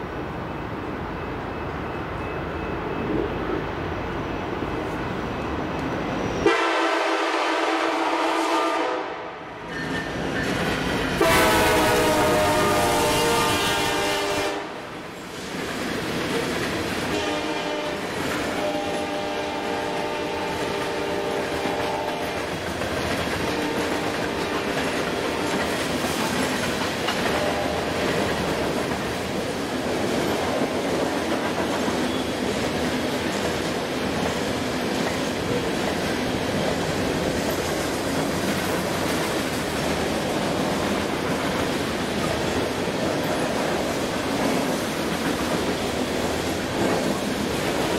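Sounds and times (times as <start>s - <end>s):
train air horn blasts: 6.4s - 9.4s, 11.2s - 14.8s, 17.1s - 22.4s, 23.4s - 25.6s, 27.4s - 27.9s
train wheels rumbling and clattering: 9.5s - 47.9s.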